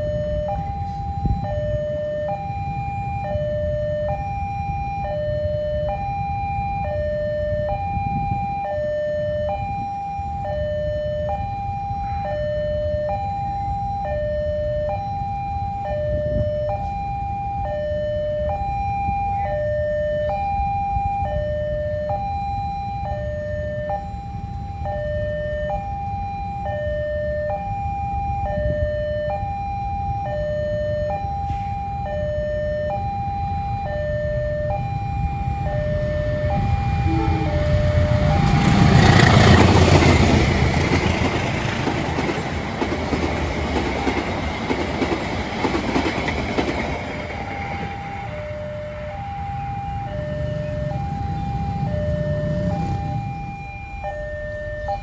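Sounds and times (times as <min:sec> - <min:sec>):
low rumble: 0:35.1 - 0:41.2.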